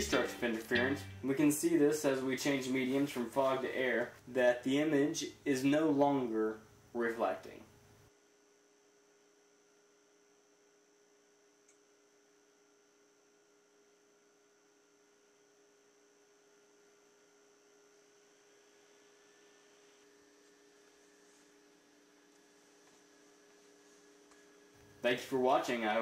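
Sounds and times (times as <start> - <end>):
faint electrical hum: 0.0 - 26.0
faint click: 11.6 - 11.8.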